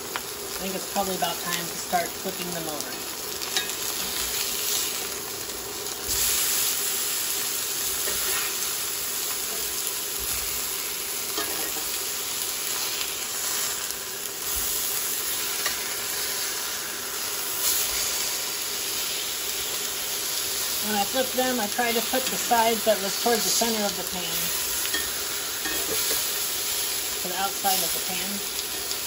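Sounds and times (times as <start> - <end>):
meat sizzling in oil: 0.0 - 29.0
metal spatula scraping pan: 8.0 - 8.6.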